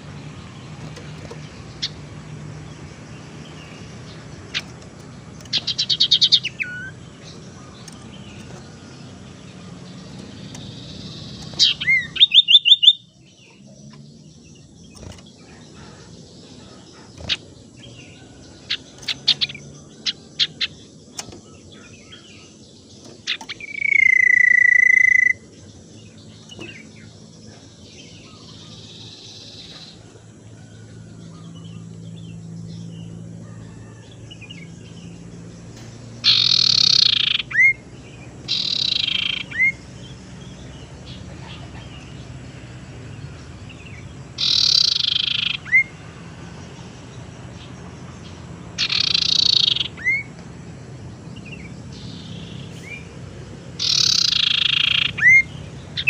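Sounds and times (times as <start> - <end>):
harsh rasping bird calls: 0.0 - 30.2, 36.2 - 46.1, 48.8 - 50.4, 51.4 - 56.0
bird trilling: 3.2 - 13.6, 22.9 - 25.5, 36.2 - 37.8, 38.4 - 39.9, 44.4 - 46.0, 48.8 - 50.3, 53.8 - 56.0
bird whistle: 11.6 - 13.1, 36.2 - 37.8, 38.5 - 39.8, 44.4 - 45.9, 48.8 - 50.3, 53.8 - 55.5.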